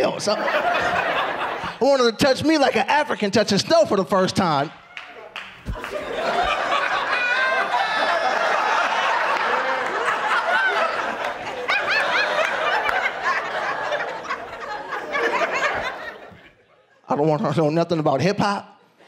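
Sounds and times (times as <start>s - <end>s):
audience laughing: 0.0s - 2.1s, 4.8s - 17.0s.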